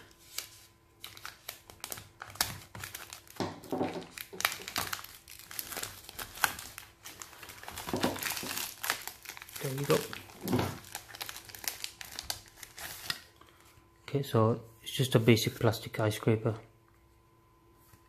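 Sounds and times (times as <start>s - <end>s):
plastic shrink-wrap crinkling: 0.0s - 13.6s.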